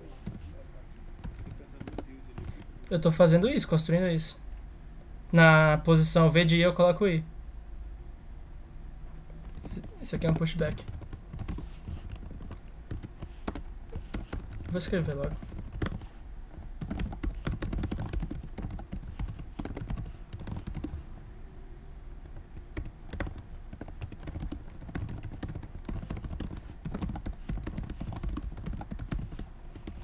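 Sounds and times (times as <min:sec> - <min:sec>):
typing on computer keyboard: 0:01.2 - 0:02.7, 0:09.4 - 0:16.2, 0:16.8 - 0:21.0, 0:22.2 - 0:30.0.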